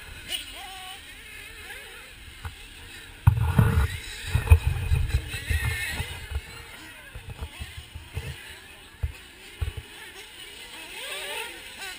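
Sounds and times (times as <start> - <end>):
wind buffeting microphone: 3.2 - 9.8.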